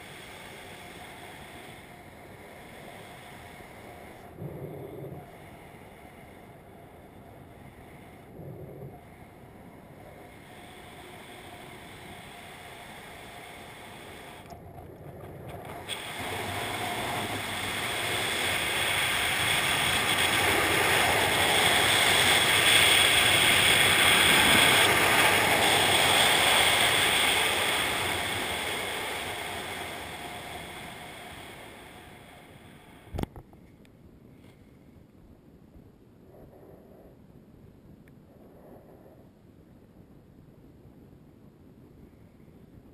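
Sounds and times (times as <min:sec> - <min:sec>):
wind rushing over camera: 0:00.0 - 0:33.8.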